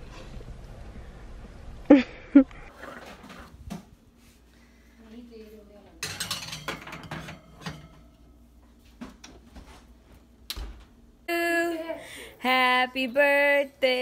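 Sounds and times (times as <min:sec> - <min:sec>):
metal tin clanking on oven rack: 0:06.0 - 0:08.3.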